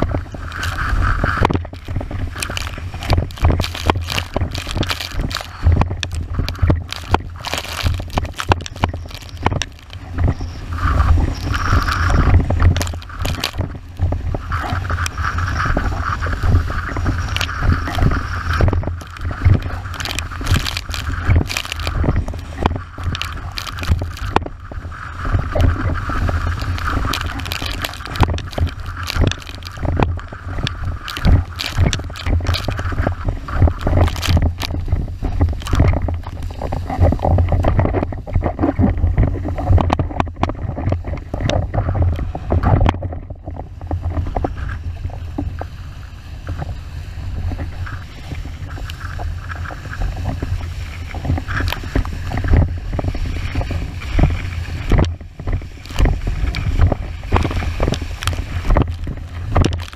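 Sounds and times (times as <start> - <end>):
water hissing and spraying: 0.0 - 37.6
board slapping waves: 0.0 - 59.9
wind buffeting microphone: 0.0 - 59.9.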